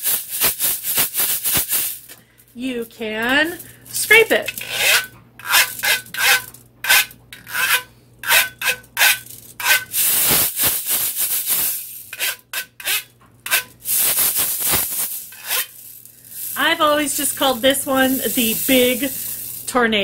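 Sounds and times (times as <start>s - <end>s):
stick scraping ridged metal tube: 4.4s - 10.5s, 11.5s - 15.8s.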